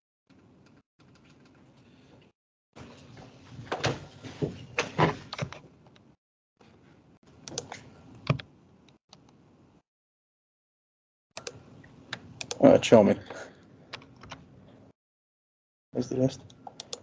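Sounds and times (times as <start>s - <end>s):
keyboard typing: 11.4s - 12.7s, 13.9s - 14.4s
mouse clicking: 16.4s - 17.0s.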